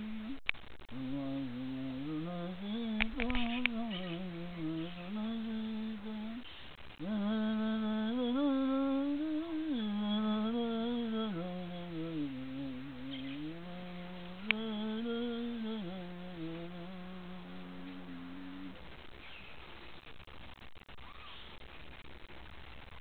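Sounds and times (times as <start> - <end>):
man humming a chant-like melody: 0.0 - 6.4, 7.0 - 18.8.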